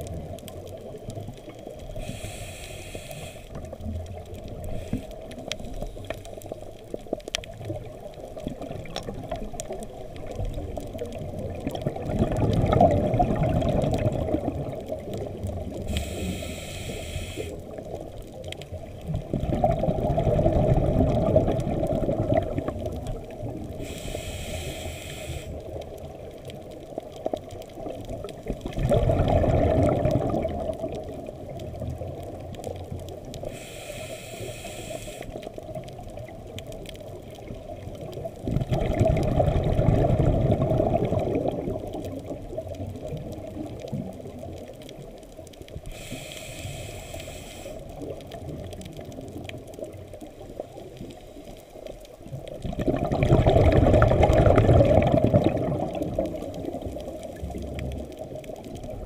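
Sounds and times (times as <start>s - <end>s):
bubbling exhaled air underwater: 0.0s - 59.0s
faint crackling: 0.0s - 59.0s
regulator inhalation hiss: 1.9s - 3.6s, 4.7s - 6.4s, 15.8s - 17.7s, 23.8s - 25.7s, 33.4s - 35.5s, 45.9s - 48.0s.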